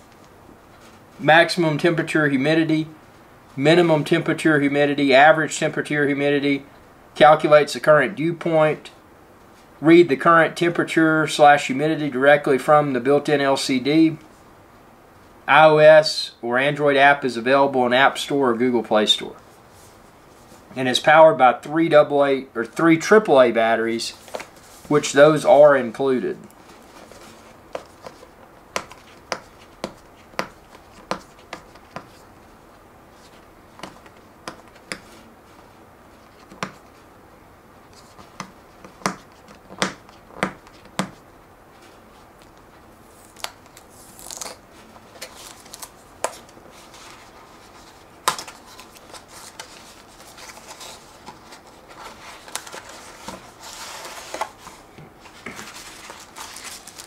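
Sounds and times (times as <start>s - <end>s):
cardboard rustling and scraping: 24.1s - 25.2s, 26.6s - 37.1s, 37.9s - 57.0s
fingernails clicking on cardboard: 38.3s - 41.2s.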